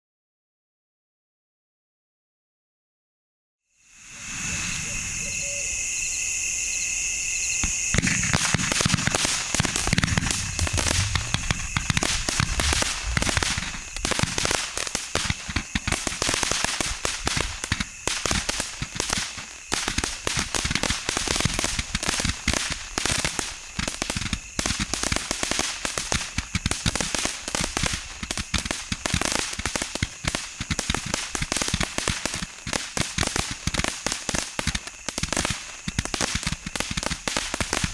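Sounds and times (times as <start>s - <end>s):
firework hissing: 3.8s - 37.9s
firework stars cracking: 7.4s - 37.9s
rapid firework shots: 7.6s - 37.9s.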